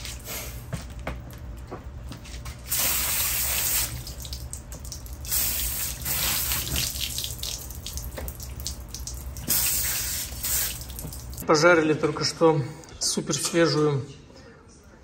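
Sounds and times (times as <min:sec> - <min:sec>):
tap water splashing into sink: 0:03.8 - 0:11.4.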